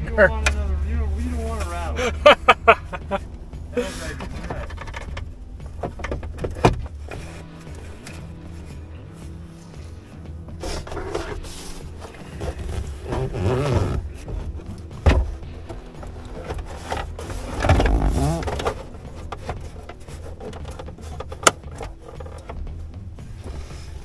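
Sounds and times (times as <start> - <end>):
plastic trim rubbing and scraping: 10.6 - 22.6.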